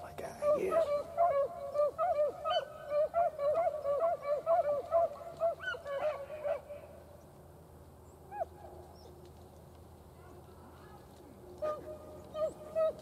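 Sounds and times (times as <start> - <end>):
beagles baying: 0.3 - 7.1, 11.6 - 13.0.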